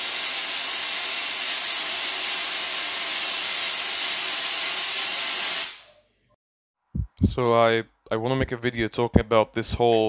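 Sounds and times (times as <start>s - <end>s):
tesla coil sparks hissing: 0.0s - 6.0s.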